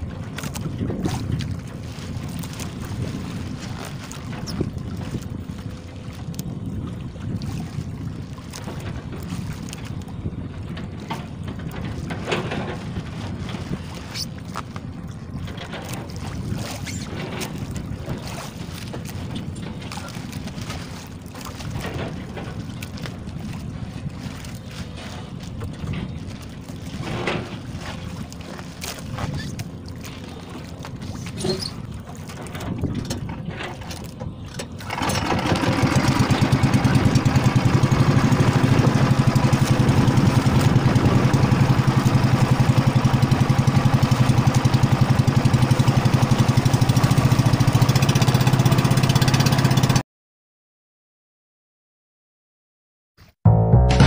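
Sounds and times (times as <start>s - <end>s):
wind rumbling on microphone: 0.0s - 49.6s.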